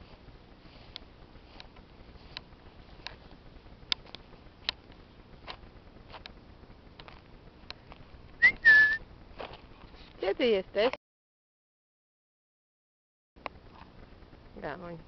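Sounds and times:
ticks and rustles in dry grass: 0:00.0 - 0:08.3
person whistling: 0:08.4 - 0:09.0.

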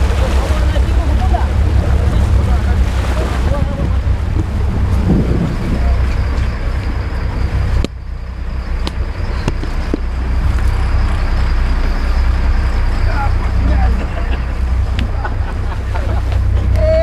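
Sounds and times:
wind on microphone: 0:00.0 - 0:08.0
boat engine rumble: 0:00.0 - 0:17.0.

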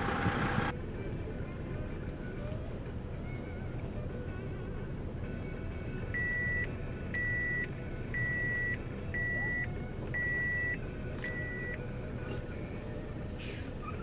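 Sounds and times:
vehicle rumble: 0:00.0 - 0:14.0
electronic warning beeps: 0:06.2 - 0:11.8.

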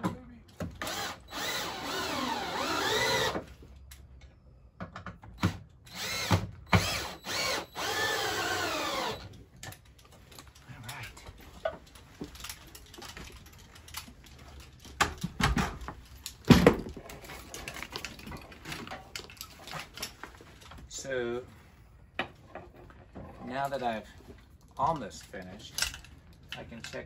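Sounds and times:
cordless drill driving screw: 0:00.8 - 0:03.4, 0:05.9 - 0:09.3
tools clattering: 0:11.4 - 0:20.8.

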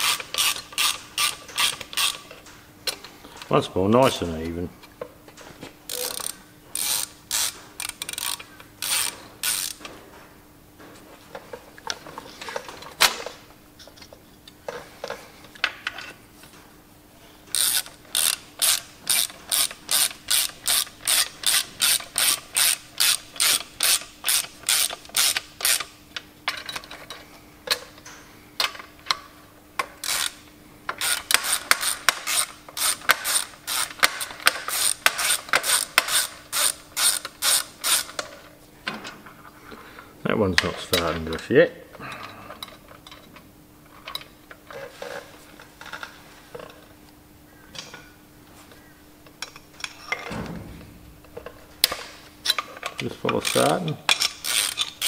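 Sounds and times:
socket ratchet clicking: 0:00.0 - 0:02.2, 0:05.9 - 0:09.8, 0:17.5 - 0:25.9, 0:30.0 - 0:38.2, 0:51.8 - 0:55.0.

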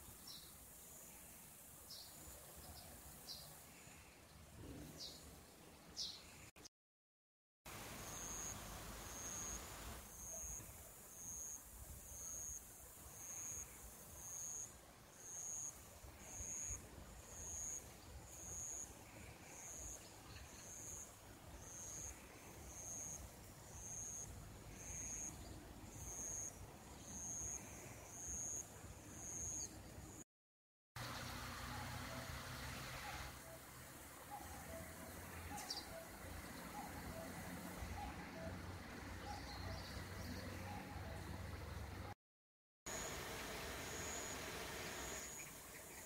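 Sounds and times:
faint outdoor hiss: 0:00.0 - 0:06.6, 0:07.7 - 0:30.2, 0:31.0 - 0:42.2, 0:42.9 - 0:46.0
cricket chirping: 0:07.9 - 0:30.2, 0:42.9 - 0:46.0.

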